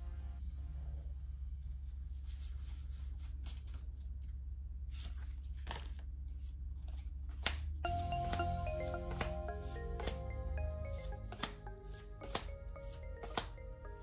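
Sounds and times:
cards swishing and clicking: 0:04.9 - 0:14.0.

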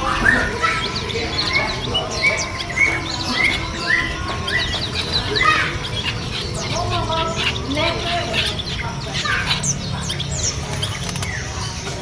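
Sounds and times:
birds chirping and whistling: 0:00.0 - 0:12.0.

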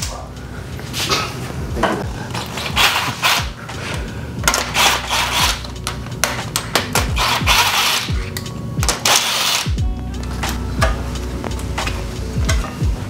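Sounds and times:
metal parts clicking: 0:02.3 - 0:10.9
impact driver running: 0:06.9 - 0:08.2.

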